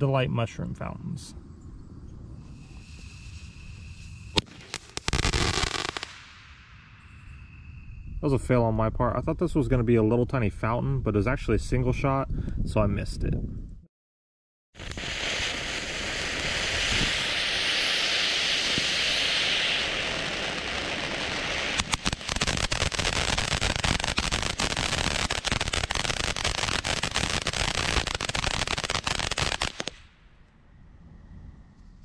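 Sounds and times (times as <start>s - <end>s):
firework sparks hissing: 2.4s - 7.0s, 14.8s - 30.1s
firework crackling pops: 2.6s - 7.0s, 14.8s - 30.2s.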